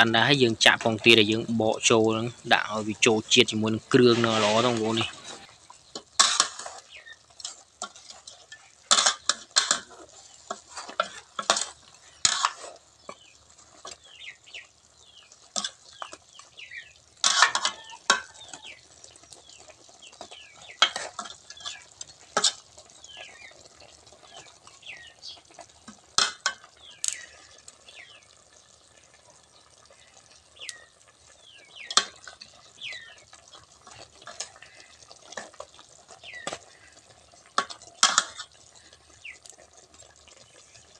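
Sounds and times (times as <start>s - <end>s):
sauce simmering: 0.0s - 40.9s
ladle scraping steel pot: 2.6s - 12.8s, 17.2s - 18.5s, 20.8s - 22.6s, 37.6s - 38.6s.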